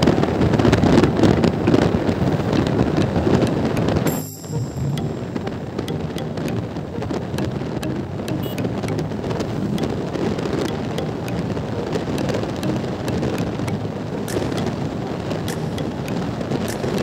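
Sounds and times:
motorcycle running: 4.9 - 17.0.

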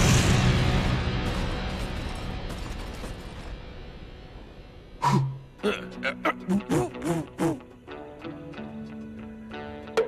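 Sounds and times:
score music with held notes: 5.2 - 10.0.

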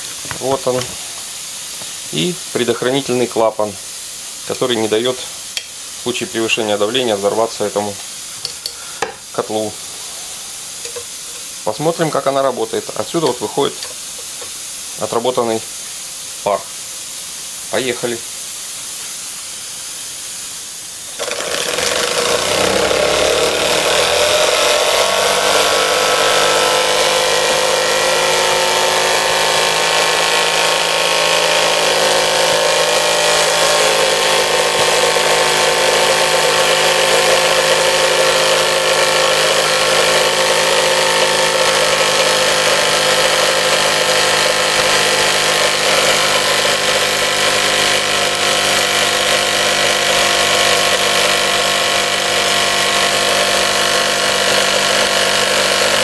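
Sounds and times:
steam engine mechanical whir: 21.2 - 56.0.

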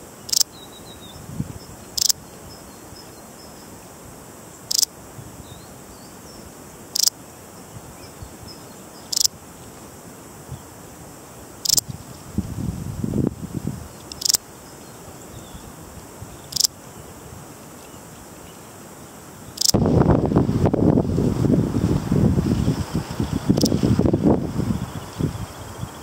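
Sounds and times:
bush-cricket chirping: 0.0 - 26.0.

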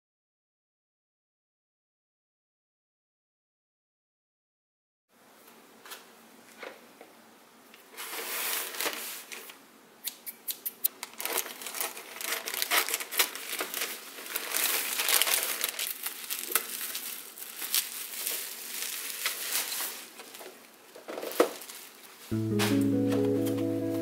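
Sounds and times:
plastic bag crinkling: 11.0 - 22.4.

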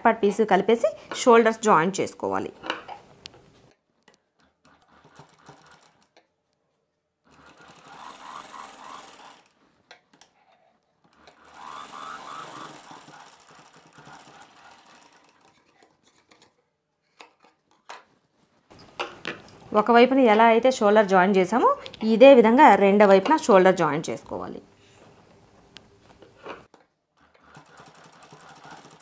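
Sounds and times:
sewing machine running: 4.5 - 6.1, 7.2 - 9.6, 11.1 - 15.9, 27.2 - 29.0.

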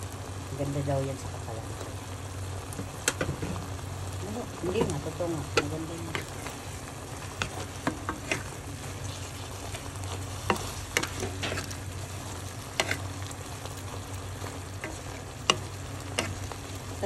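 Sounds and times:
broth sizzling in a pot: 0.0 - 17.0
low steady hum: 0.0 - 17.0
wooden spatula stirring noodles: 4.6 - 17.0.

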